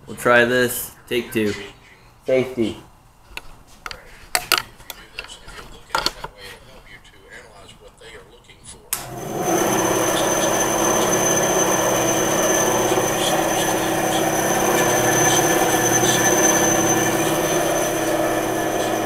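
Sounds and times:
band saw running: 0:09.0 - 0:19.0
high-pitched whine: 0:09.0 - 0:19.0.

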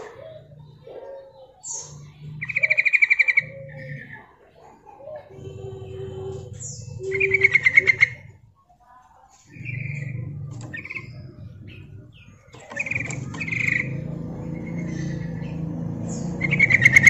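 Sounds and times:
bird calling bubbly notes: 0:05.2 - 0:08.5, 0:09.6 - 0:15.6.

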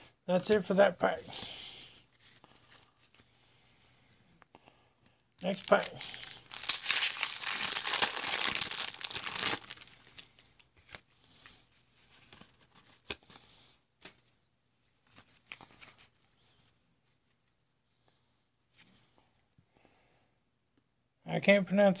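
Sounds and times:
wrapper tearing and crinkling: 0:05.4 - 0:11.0.

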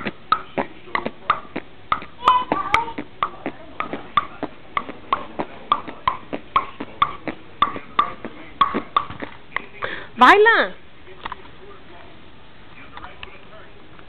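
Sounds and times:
sharp rhythmic clicks: 0:00.0 - 0:09.7.

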